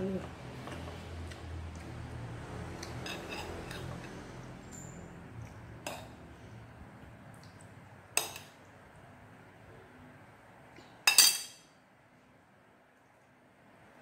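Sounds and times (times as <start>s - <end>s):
metal spoon clinking on plate: 2.9s - 4.0s, 11.0s - 11.7s.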